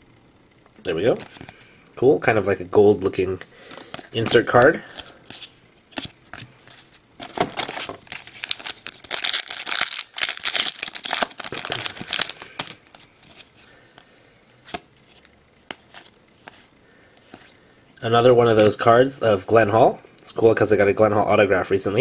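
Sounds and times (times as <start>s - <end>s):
wrapper tearing and crinkling: 7.2s - 13.5s.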